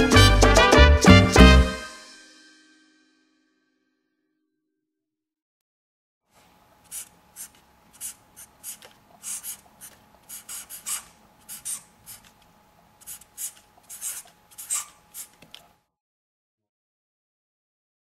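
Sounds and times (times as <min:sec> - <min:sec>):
marker pen scratching: 0:06.8 - 0:12.4, 0:13.0 - 0:15.6.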